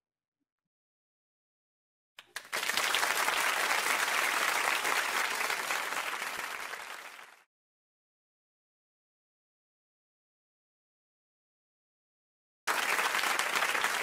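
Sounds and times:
crowd applauding: 2.2 - 7.5, 12.7 - 14.0.

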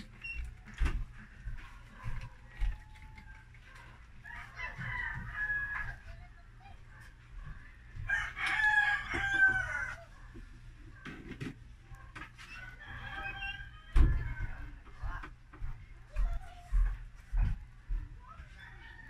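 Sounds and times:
rooster crowing: 4.2 - 6.1, 8.1 - 10.1, 12.5 - 14.0.

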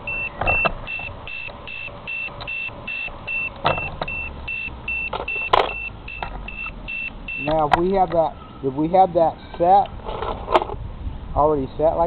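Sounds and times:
short high beeps: 0.0 - 7.6.

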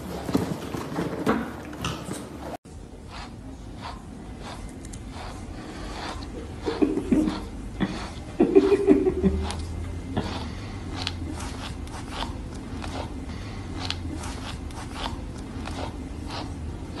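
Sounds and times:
person laughing: 6.6 - 9.8.

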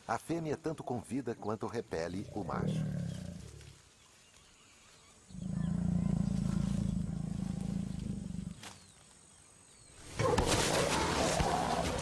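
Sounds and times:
jaguar growling: 2.2 - 3.6, 5.3 - 8.6.

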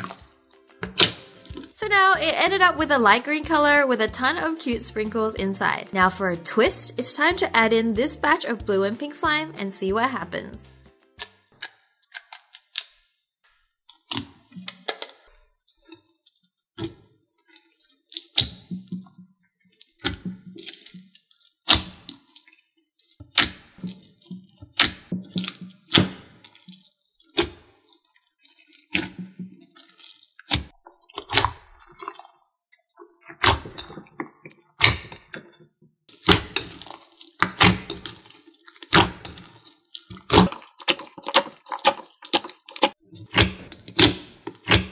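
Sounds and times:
slime squished by hand: 36.2 - 44.9.

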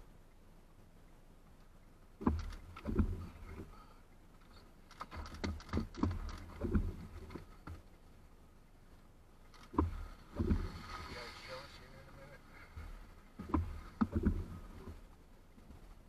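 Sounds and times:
raindrops tapping on car: 2.2 - 3.6, 4.9 - 7.8, 12.8 - 15.0.

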